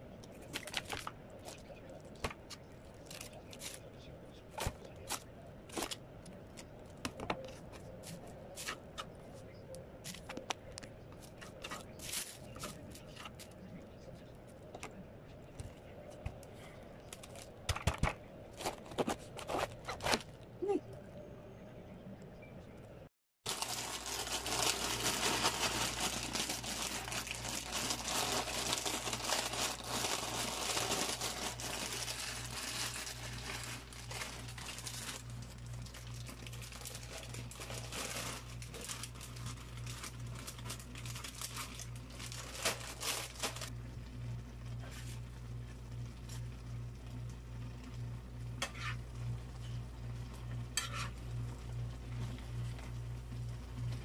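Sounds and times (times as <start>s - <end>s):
plastic bag crinkling: 0.4s - 2.2s, 23.5s - 43.7s.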